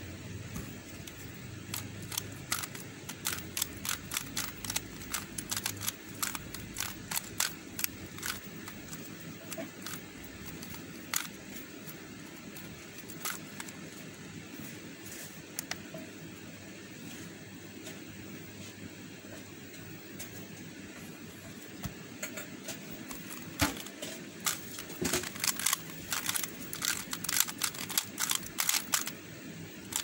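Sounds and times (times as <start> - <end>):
plastic puzzle clicking: 1.1 - 11.4, 24.4 - 29.2.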